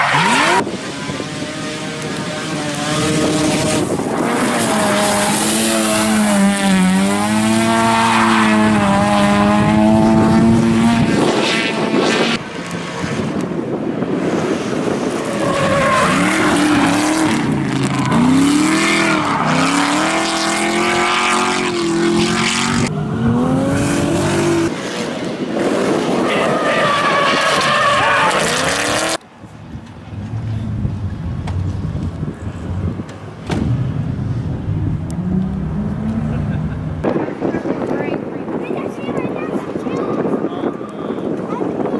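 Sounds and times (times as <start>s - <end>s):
tyre squeal and skidding: 0.0s - 1.5s, 15.1s - 20.4s, 26.1s - 29.2s
car engines revving: 0.0s - 41.9s.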